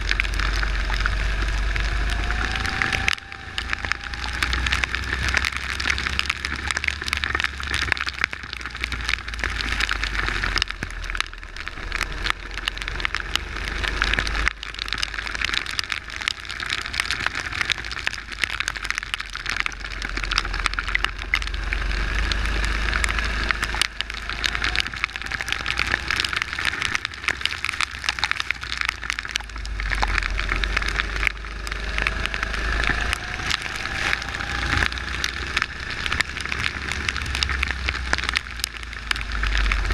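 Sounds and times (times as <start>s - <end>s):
rain and wind hitting camera: 0.0s - 39.9s.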